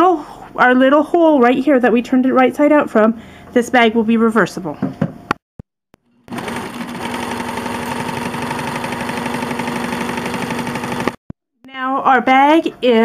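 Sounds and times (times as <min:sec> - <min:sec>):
sewing machine stitching: 0:06.3 - 0:11.2.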